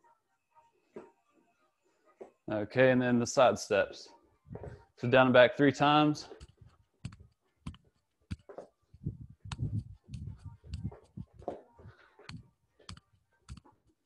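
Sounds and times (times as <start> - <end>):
shuffling footsteps on floor: 4.5 - 4.9, 6.1 - 13.0.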